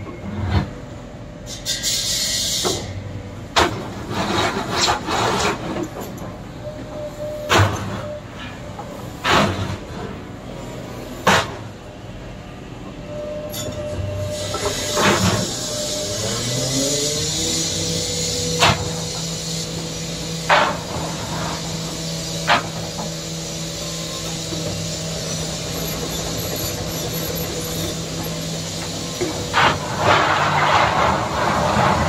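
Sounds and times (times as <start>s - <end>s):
hydraulic hisses: 1.5s - 2.9s, 14.2s - 31.7s
excavator diesel engine under load: 3.1s - 32.0s.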